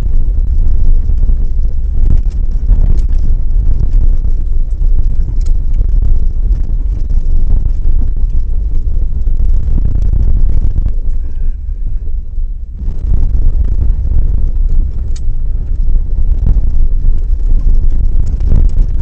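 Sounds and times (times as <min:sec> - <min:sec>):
faint clicks and rattles: 0:00.0 - 0:19.0
wind buffeting microphone: 0:00.0 - 0:19.0
trailer rumbling over dirt road: 0:04.7 - 0:19.0.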